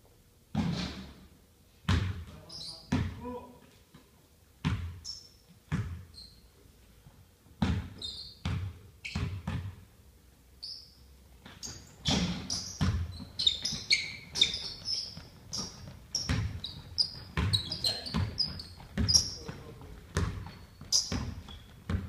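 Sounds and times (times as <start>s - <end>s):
basketball bouncing on wooden floor: 1.9s - 3.2s, 4.6s - 5.0s, 5.7s - 6.1s, 7.6s - 9.8s, 11.4s - 22.0s
sneakers squeaking: 1.9s - 3.3s, 4.6s - 6.5s, 7.6s - 9.8s, 10.6s - 22.0s.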